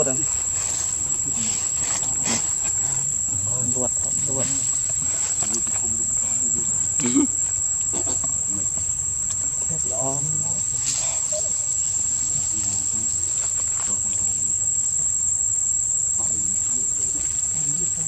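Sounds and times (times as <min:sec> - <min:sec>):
insects droning: 0:00.0 - 0:18.0.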